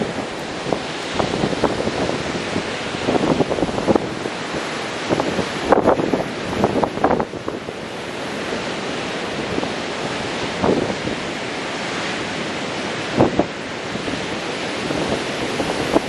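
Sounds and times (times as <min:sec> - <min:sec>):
ocean surf breaking: 0:00.0 - 0:16.0
wind buffeting microphone: 0:00.0 - 0:16.0.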